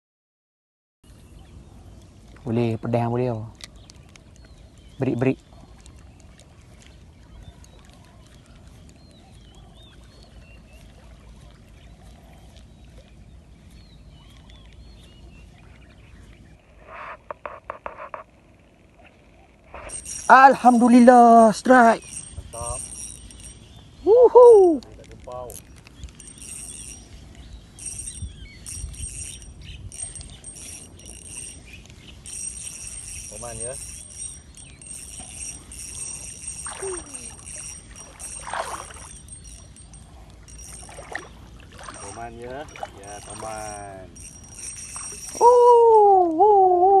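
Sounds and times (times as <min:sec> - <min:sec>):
small birds chirping: 0:01.1 - 0:46.7
fishing reel buzzing: 0:19.8 - 0:23.8, 0:24.4 - 0:45.9.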